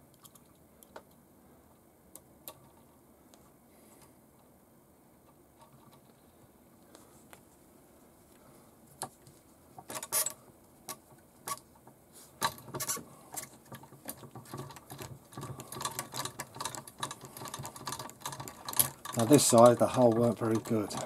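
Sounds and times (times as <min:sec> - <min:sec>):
metal clicks and rattles of tools: 0:09.9 - 0:11.6, 0:12.4 - 0:21.0.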